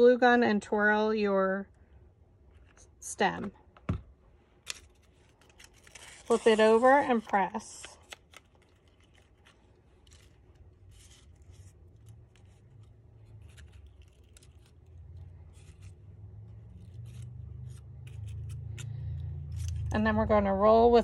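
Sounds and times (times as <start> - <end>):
paper petals rustling and clicking: 4.6 - 18.8.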